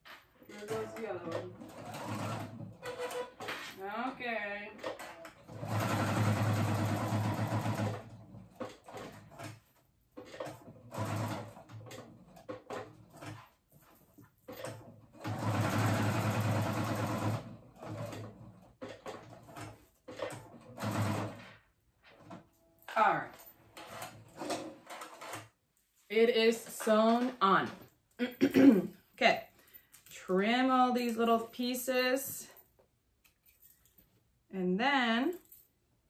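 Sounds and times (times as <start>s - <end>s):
sewing machine stitching: 0.4s - 25.6s.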